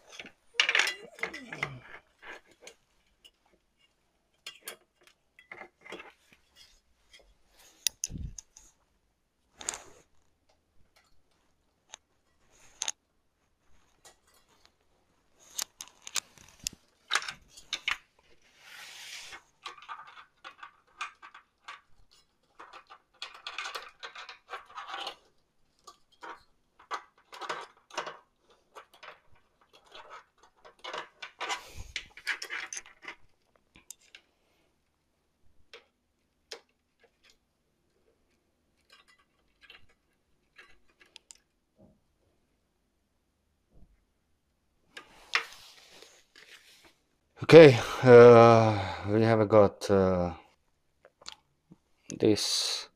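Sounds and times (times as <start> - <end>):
metal and plastic rattling: 0.0 - 8.7, 19.3 - 34.2
scratchy rubbing of metal and plastic: 17.4 - 33.3.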